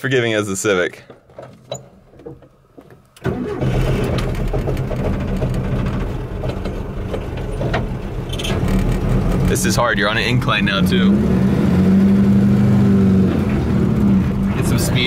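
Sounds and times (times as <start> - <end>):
car engine starting and running: 3.1 - 15.0.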